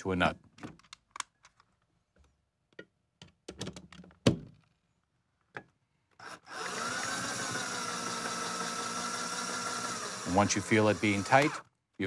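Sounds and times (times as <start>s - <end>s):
power drill whining: 6.2s - 11.7s.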